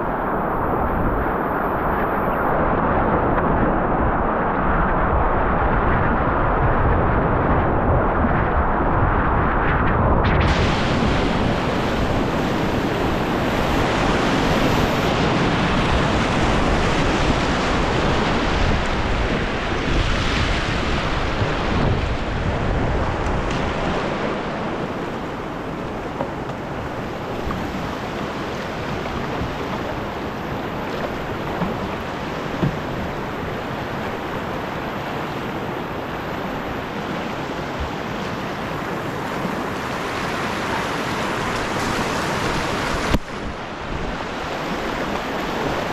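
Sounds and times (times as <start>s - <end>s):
wind buffeting microphone: 0.0s - 45.9s
whitewater rapids rushing: 10.4s - 45.9s.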